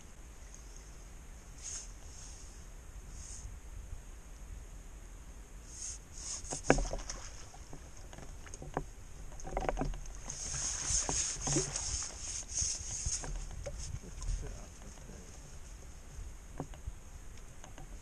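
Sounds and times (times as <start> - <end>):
fish splashing in water: 6.4 - 8.6.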